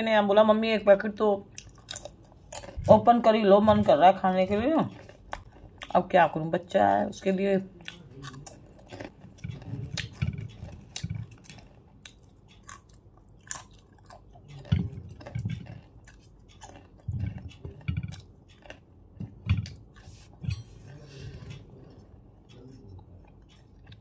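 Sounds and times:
person crunching crisp food: 1.6 - 2.8, 7.8 - 18.8.

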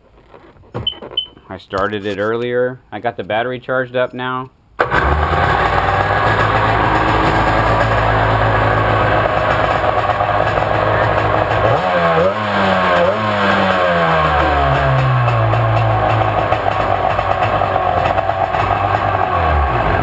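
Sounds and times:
two-stroke engine idling and revving: 4.8 - 20.0.

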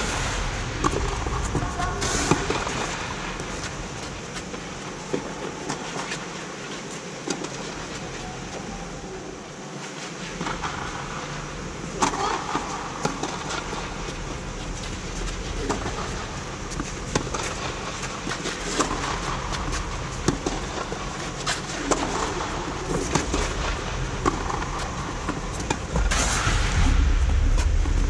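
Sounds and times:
steady background rush: 0.0 - 28.0
low rumble: 25.9 - 28.0.

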